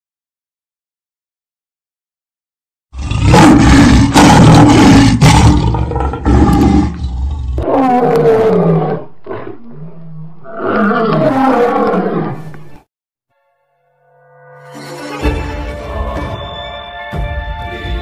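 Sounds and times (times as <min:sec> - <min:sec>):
lion roaring: 0:03.0 - 0:12.8.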